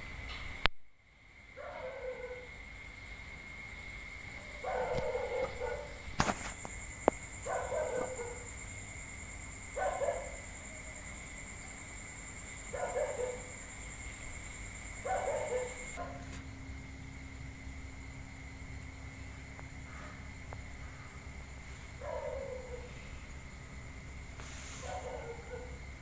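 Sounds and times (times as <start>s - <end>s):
dog barking: 1.6s - 2.5s, 4.5s - 6.0s, 7.4s - 8.5s, 9.8s - 10.5s, 12.7s - 13.5s, 15.0s - 16.4s, 22.0s - 23.0s, 24.8s - 25.8s.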